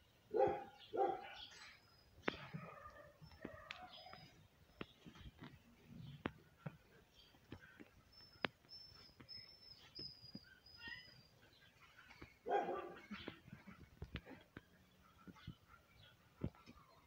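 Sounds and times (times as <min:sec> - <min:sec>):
dog barking: 0:00.3 - 0:01.5, 0:02.5 - 0:04.2, 0:12.4 - 0:13.2.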